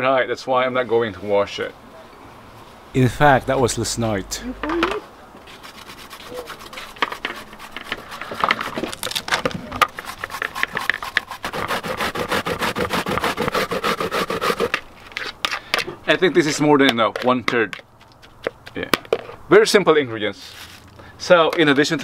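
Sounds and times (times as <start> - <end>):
courgette grating on metal grater: 5.5 - 9.0, 9.9 - 14.8.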